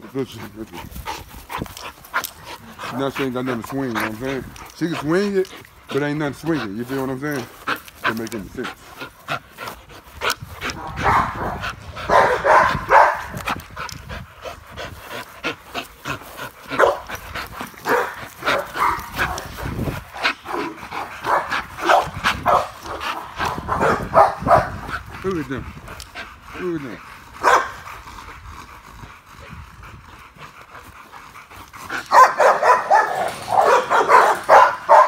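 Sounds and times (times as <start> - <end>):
dogs barking: 10.7 - 13.4, 16.7 - 25.0, 27.4 - 27.8, 32.0 - 35.0.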